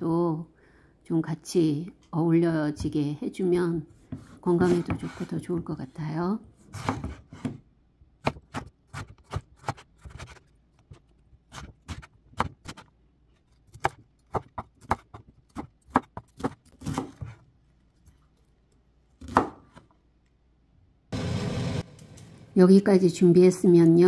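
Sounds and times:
knife chopping on wooden board: 0:06.7 - 0:07.6, 0:08.2 - 0:10.4, 0:13.7 - 0:17.4, 0:19.2 - 0:19.8.

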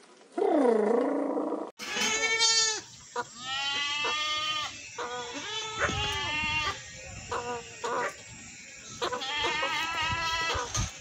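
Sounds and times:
goat bleating: 0:01.8 - 0:08.1, 0:09.0 - 0:10.9.

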